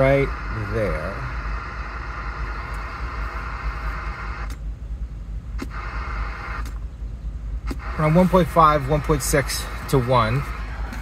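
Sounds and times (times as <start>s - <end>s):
radio static hiss: 0.0s - 4.6s, 5.6s - 6.8s, 7.6s - 11.0s
low rumble: 0.0s - 11.0s
radio switch clicks: 4.0s - 4.7s, 5.6s - 6.9s, 7.6s - 8.0s.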